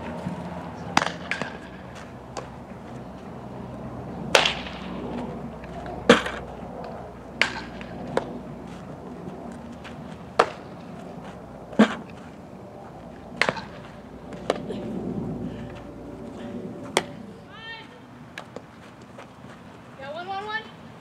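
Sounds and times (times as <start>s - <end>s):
outdoor background noise: 0.0s - 21.0s
softball hitting leather gloves: 13.4s - 14.7s.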